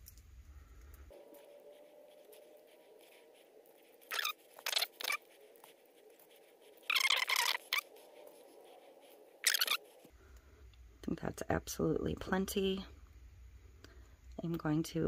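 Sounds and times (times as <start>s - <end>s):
faint steady hum: 0.0s - 15.0s
fingertips scraping glitter off paper: 1.3s - 10.0s.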